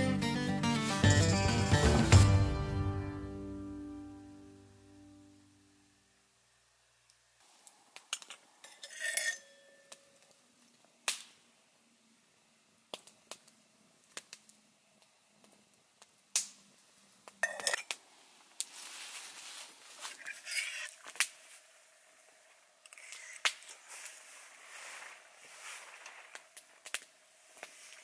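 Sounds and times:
metal pot clinking: 8.6s - 9.9s, 17.4s - 17.8s
campfire crackling and popping: 9.9s - 11.4s, 12.8s - 18.8s, 21.0s - 21.4s, 22.8s - 24.2s, 25.9s - 28.0s.

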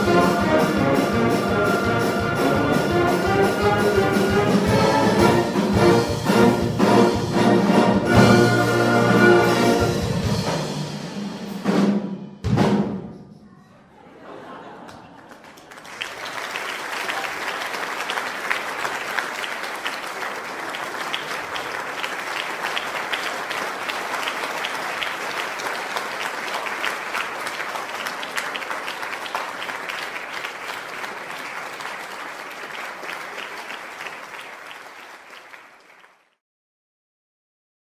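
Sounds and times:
audience applauding: 14.4s - 36.4s.

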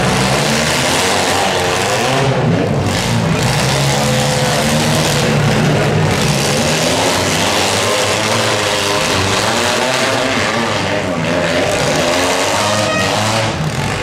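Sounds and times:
car engines revving: 0.0s - 14.0s.

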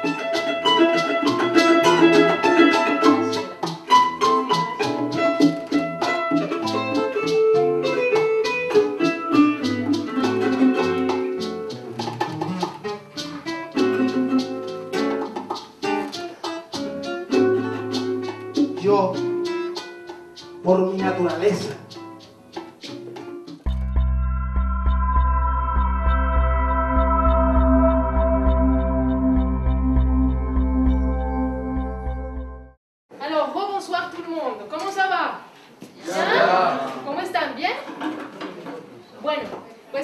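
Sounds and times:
maracas: 0.0s - 24.1s
bongos: 0.0s - 27.2s
guitar: 0.0s - 32.8s
plucked string melody: 0.0s - 32.8s.

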